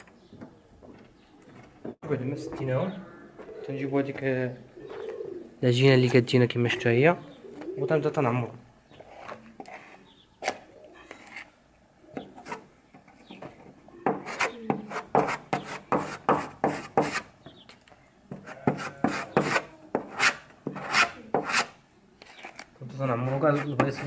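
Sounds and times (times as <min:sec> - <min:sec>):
putty knife scraping wood: 0:18.4 - 0:21.7.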